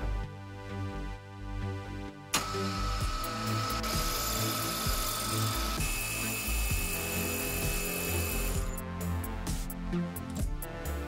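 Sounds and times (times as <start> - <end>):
background music with a beat: 0.0 - 11.0
milling machine cutting with whine: 2.4 - 8.8.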